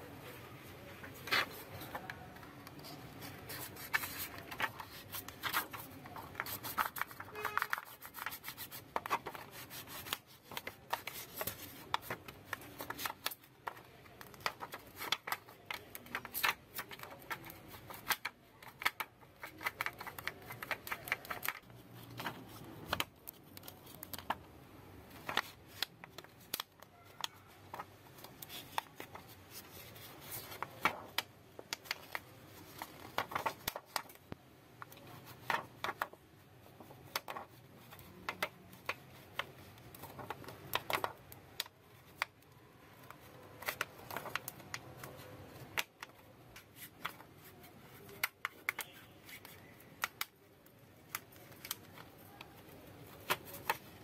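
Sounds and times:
plastic card scraping on glass: 1.0s - 24.4s.

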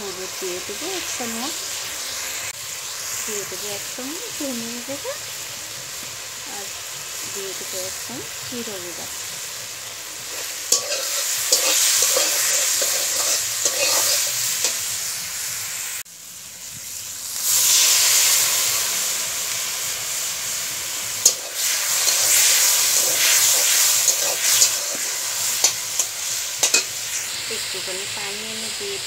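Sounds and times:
paste sizzling in hot oil: 0.0s - 29.0s
spatula scraping metal wok: 10.2s - 15.0s, 21.2s - 27.7s.

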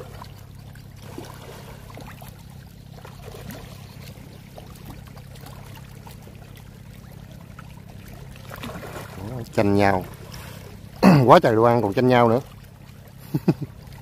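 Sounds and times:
fish splashing at surface: 0.0s - 11.2s
steady low hum: 0.0s - 14.0s.

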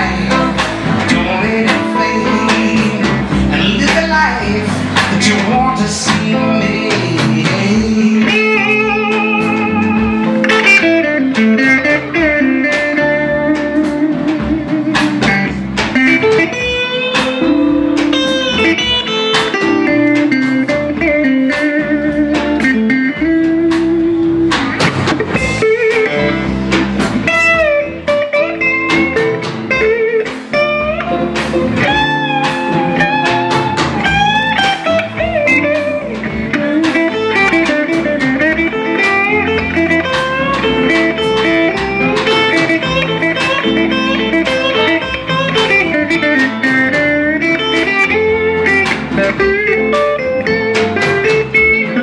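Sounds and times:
electric blues band playing: 0.0s - 52.0s
lead electric guitar bending notes: 0.0s - 52.0s.

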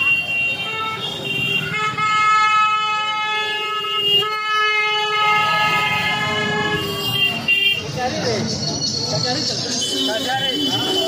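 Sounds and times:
vehicle horn blasts: 0.0s - 7.9s
street traffic hum: 0.0s - 11.0s.

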